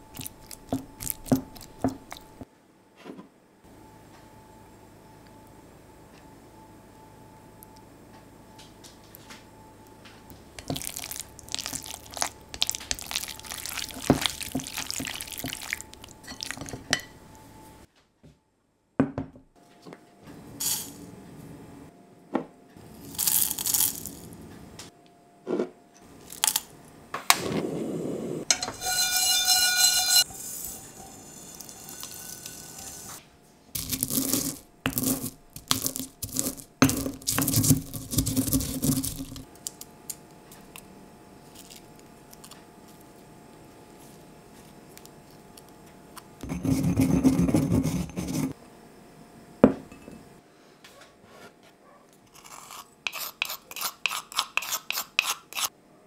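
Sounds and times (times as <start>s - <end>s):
hand mixing meat in glass bowl: 0.0s - 2.4s, 10.6s - 17.3s
pestle grinding in mortar: 0.0s - 2.4s, 10.6s - 16.9s, 28.5s - 33.1s, 33.8s - 39.4s, 46.4s - 48.6s, 52.3s - 55.7s
seeds handled in metal pan: 23.1s - 24.3s, 28.5s - 33.2s, 33.8s - 39.8s
ringing tone: 28.5s - 33.2s.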